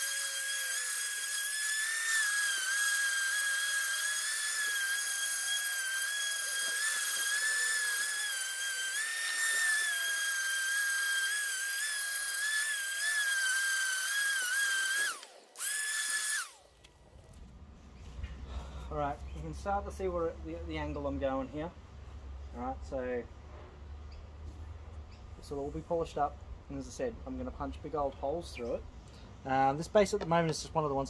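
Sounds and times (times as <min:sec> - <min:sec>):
orbital sander whining: 0:00.0 - 0:16.9.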